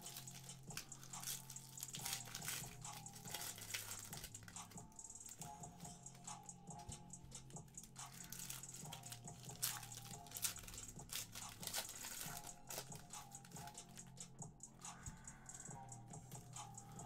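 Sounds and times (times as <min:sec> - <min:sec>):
foil wrapper rustling: 0:00.0 - 0:04.7, 0:08.1 - 0:14.2
cards clicking and rustling: 0:00.0 - 0:05.6, 0:07.3 - 0:14.2
faint background music: 0:00.0 - 0:17.0.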